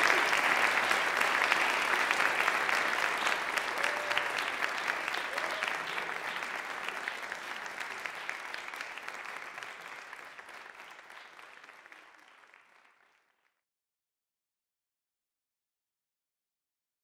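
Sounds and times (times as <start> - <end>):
audience applauding: 0.0 - 13.5.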